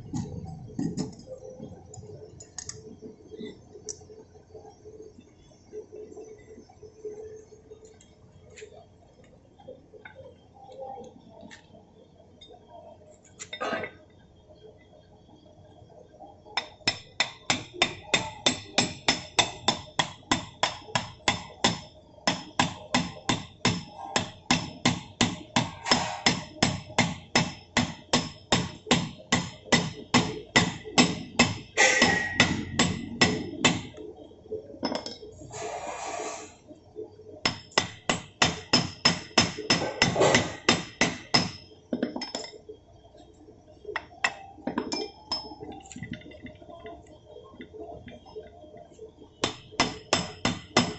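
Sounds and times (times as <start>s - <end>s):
hammer blows on metal: 28.6s - 33.9s.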